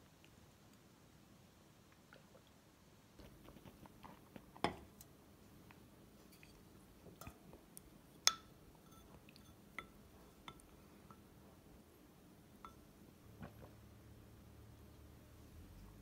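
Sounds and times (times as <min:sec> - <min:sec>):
soft chewing: 0:03.2 - 0:11.8.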